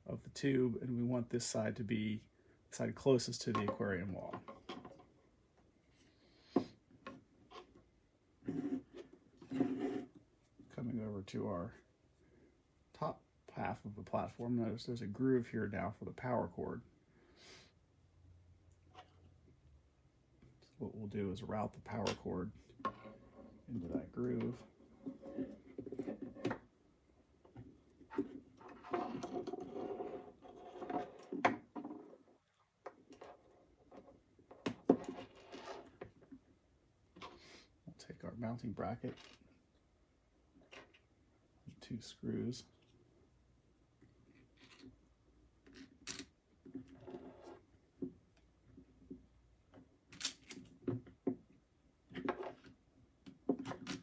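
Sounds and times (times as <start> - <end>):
plastic parts clicking and knocking: 49.0 - 54.0.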